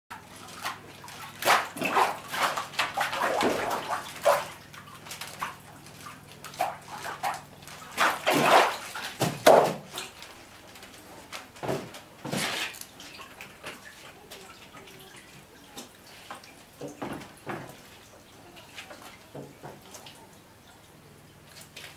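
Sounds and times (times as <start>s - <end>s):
pulp slurry sloshing and splashing: 0.1s - 10.6s.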